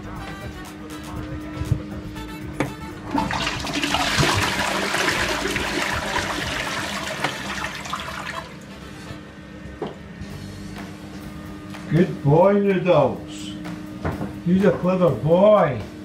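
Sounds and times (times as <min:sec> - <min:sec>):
toilet flushing: 0:03.0 - 0:08.7.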